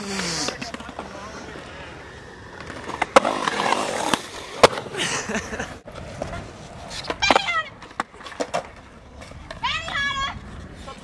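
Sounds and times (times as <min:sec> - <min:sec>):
skateboard wheels rolling on concrete: 0:00.0 - 0:11.0
skateboard impacts: 0:02.4 - 0:05.0, 0:05.8 - 0:11.0.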